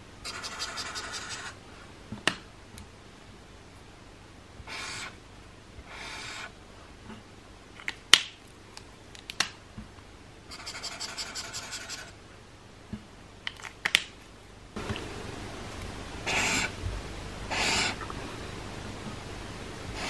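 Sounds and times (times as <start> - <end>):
marker tip scratching paper: 0.3 - 1.5, 10.5 - 12.2.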